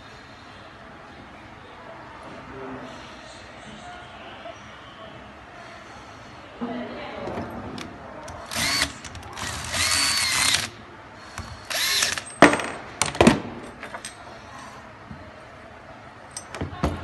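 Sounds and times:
electric screwdriver whining: 8.4 - 10.7, 11.7 - 12.2.

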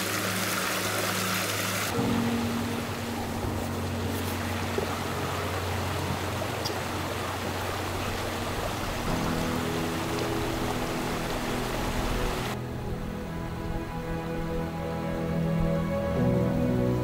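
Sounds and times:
running water: 0.0 - 12.6
soft background music: 0.0 - 17.0.

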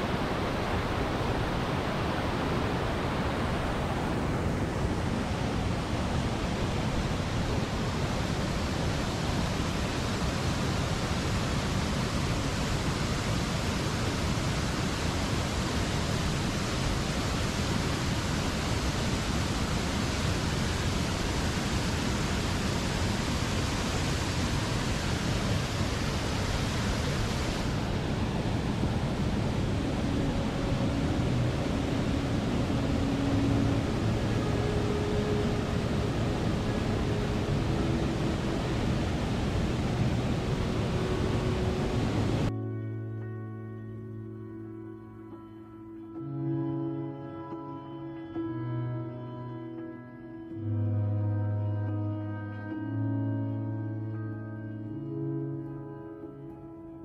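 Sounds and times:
waterfall rushing: 0.0 - 42.5.

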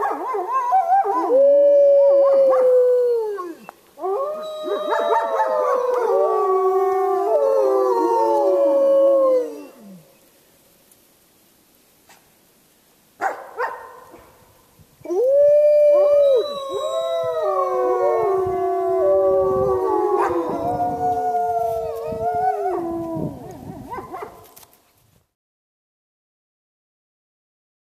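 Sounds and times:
wolves howling in chorus: 0.1 - 10.1, 15.1 - 24.3.

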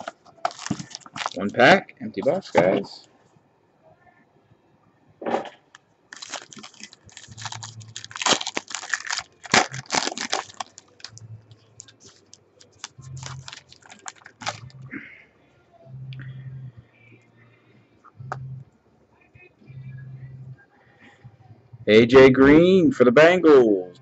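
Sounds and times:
foil wrapper tearing and crinkling: 0.0 - 1.6, 6.1 - 11.2, 11.8 - 14.8.

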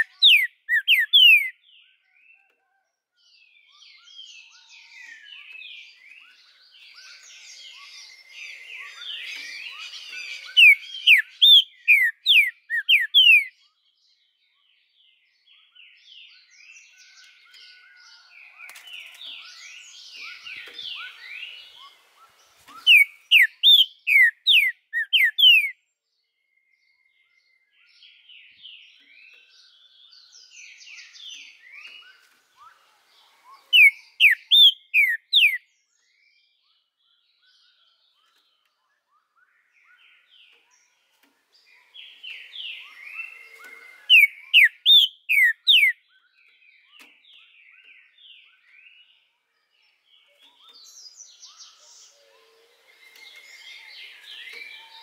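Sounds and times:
soft bird twittering: 0.0 - 2.6, 3.4 - 25.8, 26.4 - 55.0.

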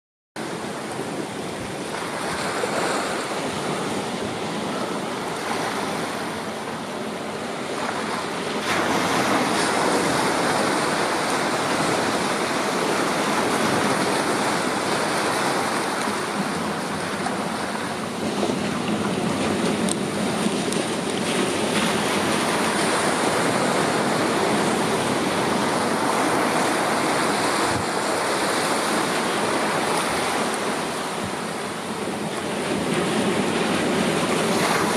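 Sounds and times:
sea waves washing over rocks: 0.4 - 34.9.

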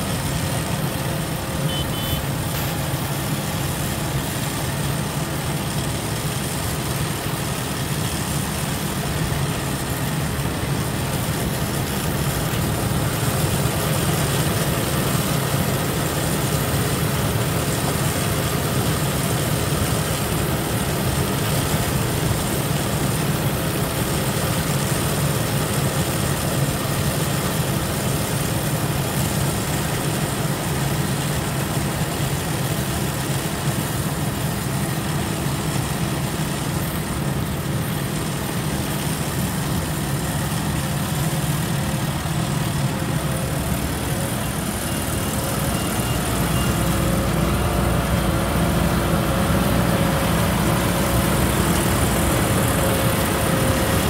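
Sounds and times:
combine harvester engine drone: 0.0 - 54.0.

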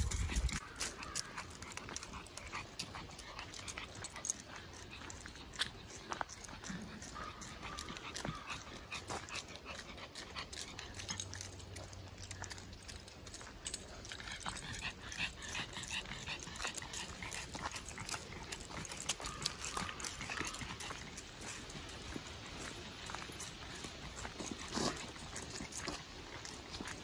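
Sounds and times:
dog breathing heavily: 0.0 - 27.0
footsteps on dry leaves and gravel: 0.0 - 27.0.

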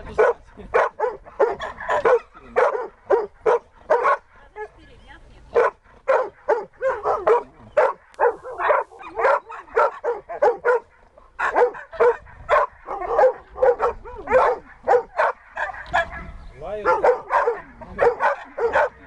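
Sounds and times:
dog barking and yelping: 0.2 - 4.8, 5.5 - 19.0.

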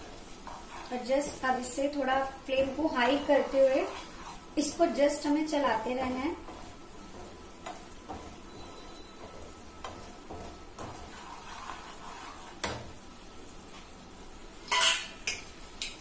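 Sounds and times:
wooden spatula scraping a pan: 0.0 - 13.0
faint sizzle: 0.0 - 16.0.

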